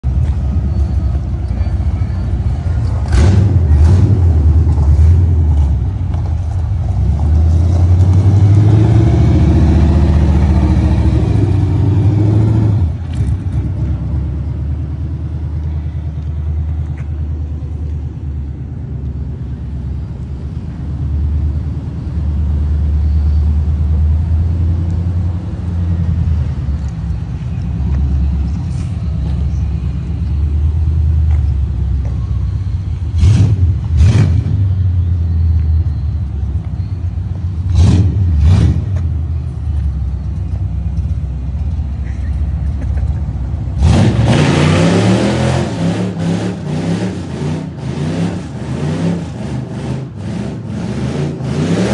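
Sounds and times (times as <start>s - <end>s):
car engine exhaust rumble: 0.0s - 51.9s.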